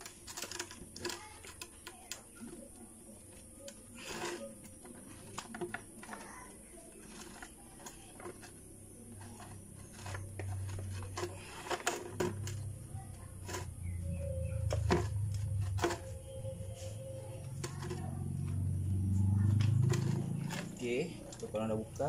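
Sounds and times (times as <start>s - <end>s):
low hum: 10.2s - 22.0s.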